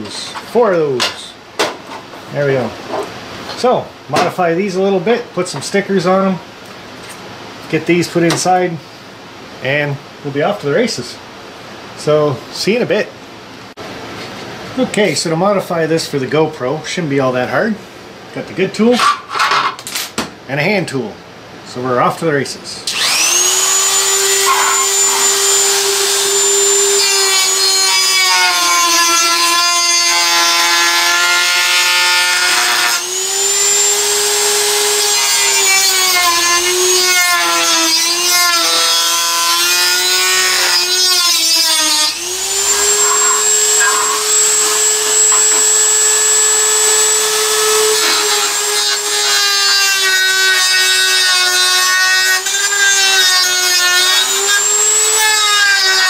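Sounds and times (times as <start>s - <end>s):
rotary tool cutting plastic: 40.3s - 56.0s.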